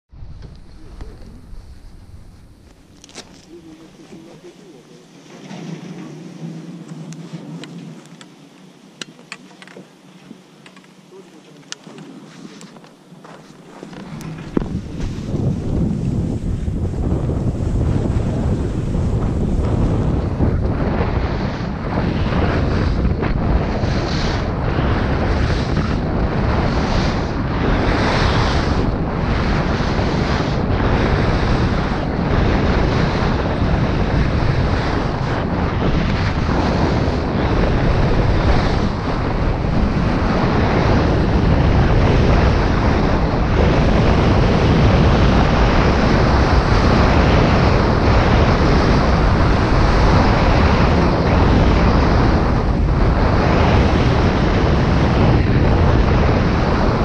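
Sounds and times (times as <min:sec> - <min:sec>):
wind buffeting microphone: 0:00.1 - 0:57.0
skis scraping on packed snow: 0:00.4 - 0:08.2, 0:11.1 - 0:20.2.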